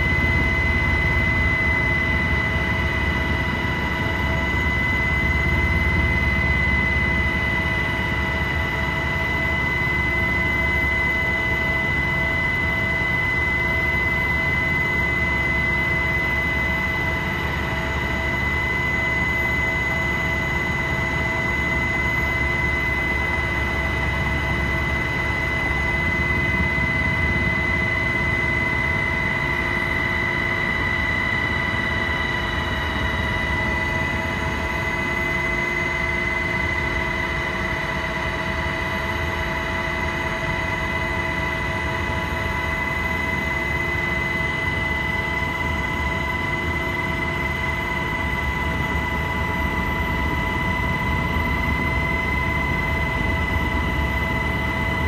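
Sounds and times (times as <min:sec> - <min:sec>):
helicopter turbine whine: 0:00.0 - 0:55.0
low rotor and engine rumble: 0:00.0 - 0:55.0.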